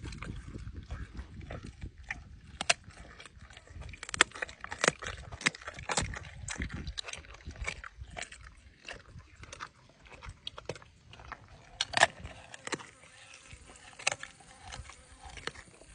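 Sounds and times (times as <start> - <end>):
jaguar chewing raw meat: 0.0 - 15.9
wet crunches and clicks: 0.0 - 15.9.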